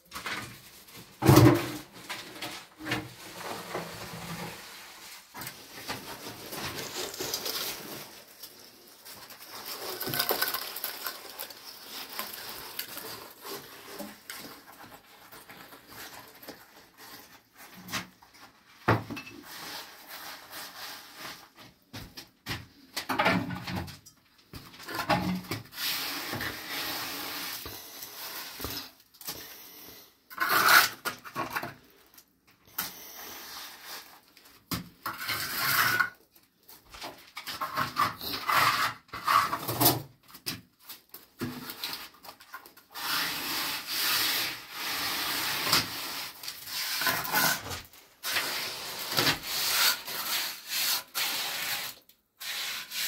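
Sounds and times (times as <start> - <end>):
rubbing and scraping: 0.1 - 18.8, 30.3 - 32.1, 33.0 - 36.2, 36.8 - 40.2, 41.2 - 53.0.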